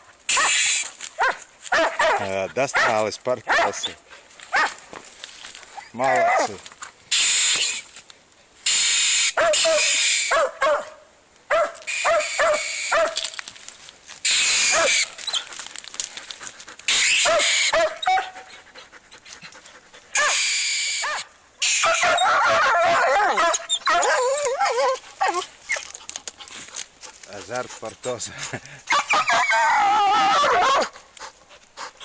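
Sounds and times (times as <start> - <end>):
dogs barking and yelping: 0.0 - 4.8, 5.5 - 7.8, 9.0 - 13.4, 14.3 - 32.0
dog whining: 14.3 - 15.5, 16.9 - 18.6, 20.2 - 26.0, 28.9 - 30.9.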